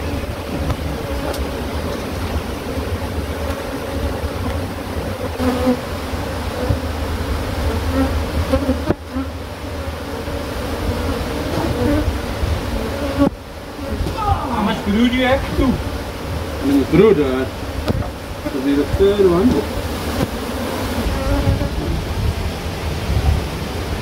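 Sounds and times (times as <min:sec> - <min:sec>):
honeybees buzzing loudly: 0:00.0 - 0:24.0
sharp knocks: 0:17.8 - 0:18.2.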